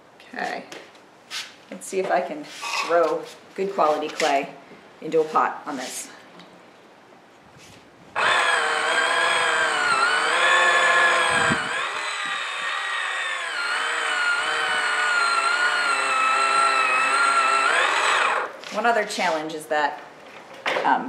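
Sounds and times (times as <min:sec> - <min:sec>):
small electric motor whining: 0:08.2 - 0:18.6.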